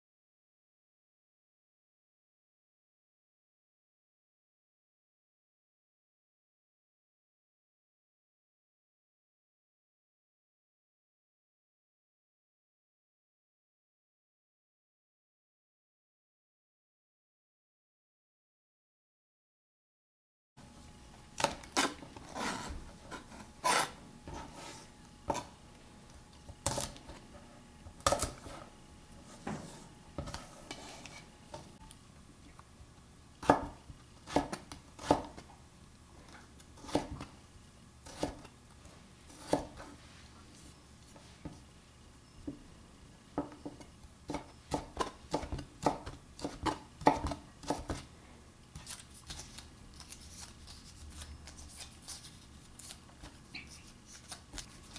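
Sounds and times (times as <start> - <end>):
knife chopping on wooden board: 21.4 - 24.7, 26.6 - 27.2, 28.0 - 28.6, 33.4 - 35.4, 36.8 - 37.3, 38.1 - 38.5, 39.3 - 39.9, 43.4 - 48.0.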